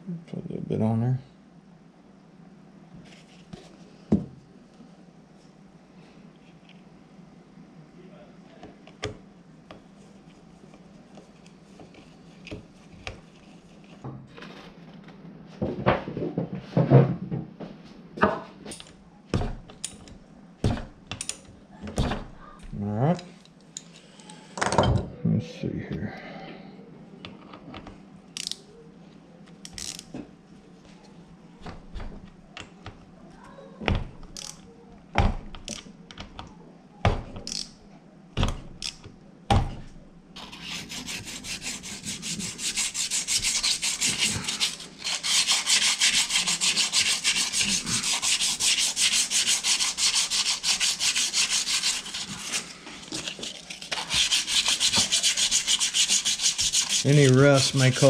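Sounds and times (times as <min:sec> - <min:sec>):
sandpaper rubbing on steel: 0:40.4 - 0:58.0.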